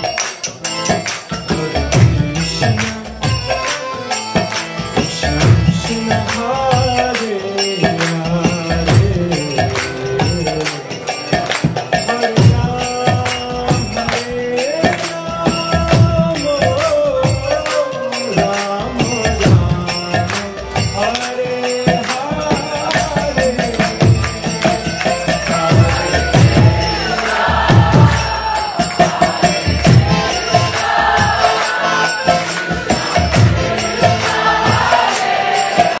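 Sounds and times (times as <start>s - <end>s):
hand cymbals: 0.0s - 36.0s
hand drum: 0.0s - 36.0s
voices chanting: 25.9s - 36.0s.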